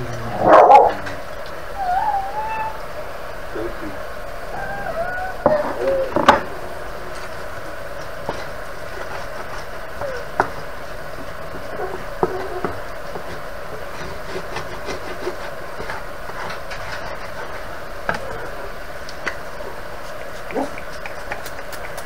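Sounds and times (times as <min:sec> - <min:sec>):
frying sizzle: 0:00.0 - 0:22.0
wooden spoon stirring rice: 0:07.1 - 0:22.0.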